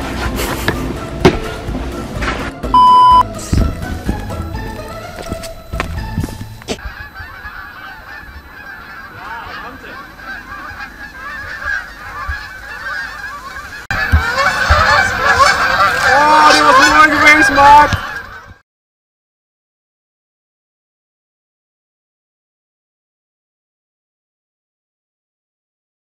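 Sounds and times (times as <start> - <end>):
geese honking in flight: 6.7 - 18.6.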